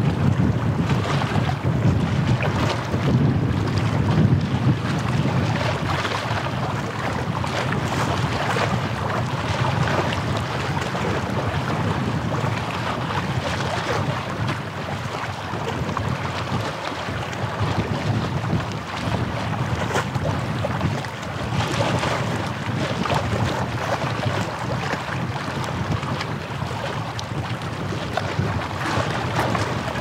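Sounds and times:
waves washing on shore: 0.0 - 30.0
wind buffeting microphone: 0.0 - 30.0.

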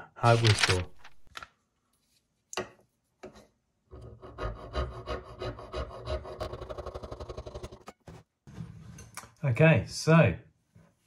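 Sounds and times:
saw rasping through wax: 4.2 - 7.9.

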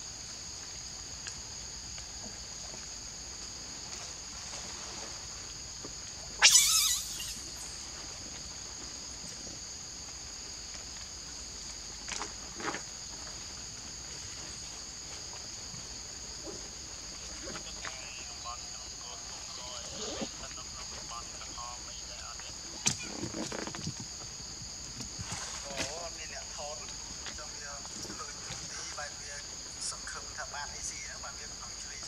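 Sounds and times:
forest insects droning: 0.0 - 32.0
macaque screaming: 6.4 - 7.5.

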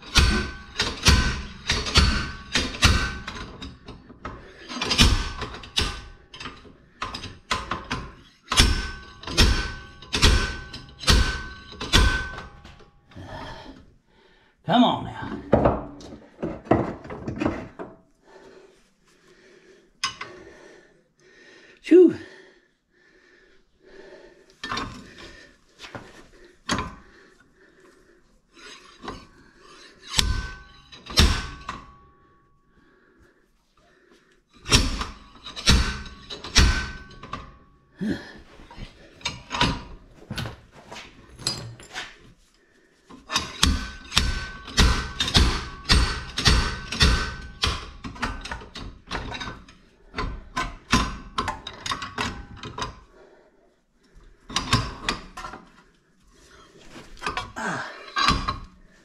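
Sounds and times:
metal knocks and clanks: 0.0 - 13.2, 15.2 - 18.0, 28.6 - 32.1, 34.6 - 37.6, 43.1 - 53.0, 57.0 - 58.7.

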